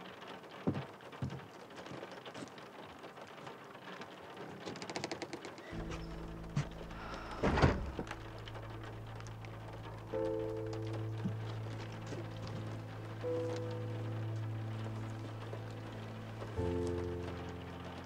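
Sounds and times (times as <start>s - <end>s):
soft crackling patter: 0.0s - 18.0s
low sustained drone notes: 5.8s - 18.0s.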